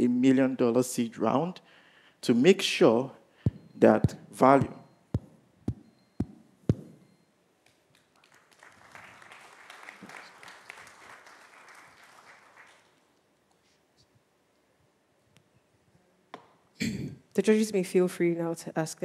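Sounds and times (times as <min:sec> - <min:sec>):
short thumps: 0:03.5 - 0:07.2
audience applauding: 0:07.9 - 0:13.1.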